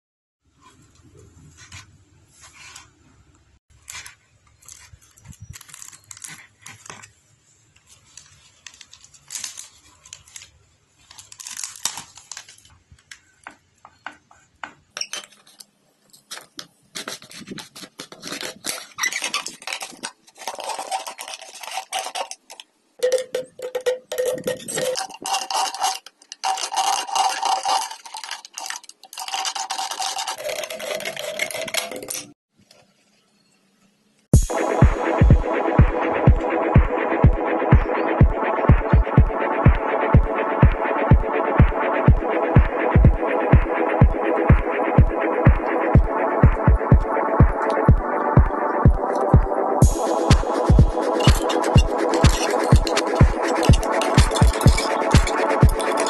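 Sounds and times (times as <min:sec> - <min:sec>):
plastic bottle crinkling: 0:03.8 - 0:13.4, 0:15.0 - 0:32.3
knife blade scraping plastic bottle: 0:16.3 - 0:22.7, 0:24.1 - 0:32.4.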